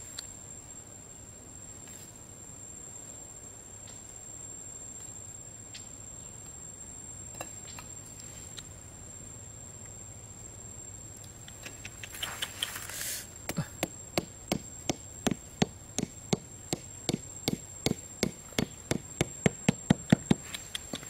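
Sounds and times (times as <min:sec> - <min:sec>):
hatchet knocking on bamboo stake: 0:13.5 - 0:21.0.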